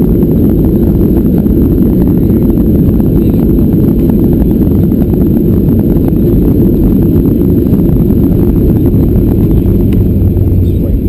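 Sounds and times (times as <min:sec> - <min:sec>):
aircraft cabin rumble: 0:00.0 - 0:11.0.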